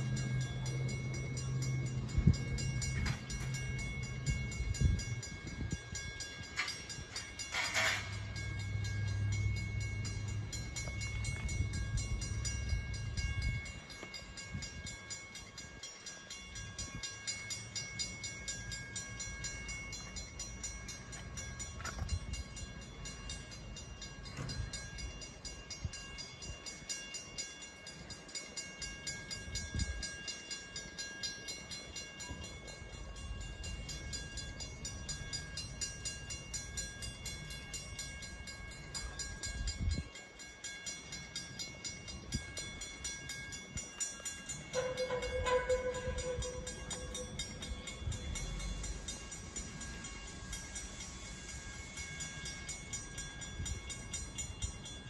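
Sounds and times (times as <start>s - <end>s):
steam locomotive low rumble: 0.0s - 55.0s
thin high tones: 43.8s - 55.0s
steady steam hiss: 47.4s - 55.0s.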